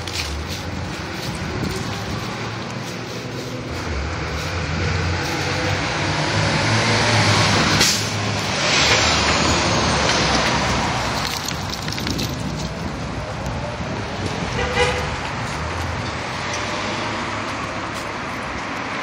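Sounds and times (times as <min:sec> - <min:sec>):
street traffic: 0:00.0 - 0:19.0
car engine revving past: 0:03.9 - 0:11.0.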